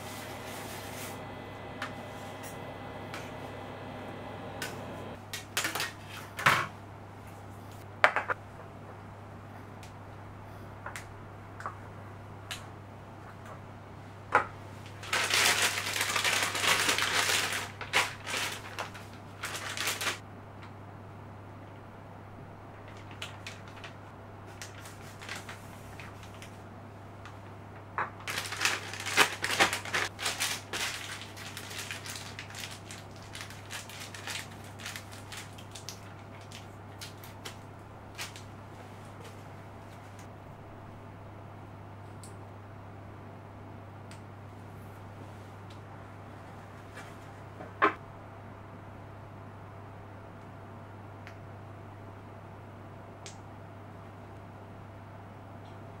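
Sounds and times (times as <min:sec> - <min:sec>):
low hum: 0:00.0 - 0:05.2
plastic bag crinkling: 0:15.0 - 0:20.2, 0:22.9 - 0:26.6, 0:28.2 - 0:38.5.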